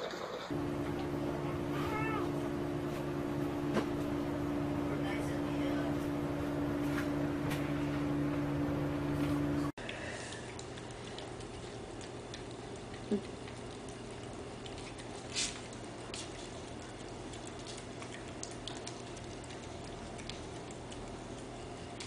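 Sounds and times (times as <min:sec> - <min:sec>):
steady low hum: 0:00.5 - 0:22.0
puppy chewing: 0:10.3 - 0:22.0.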